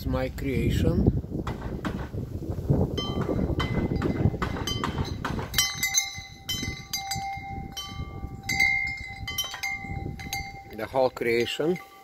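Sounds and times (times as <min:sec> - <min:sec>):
wind rumble on microphone: 0:00.0 - 0:11.5
wind chime ringing: 0:03.0 - 0:12.0.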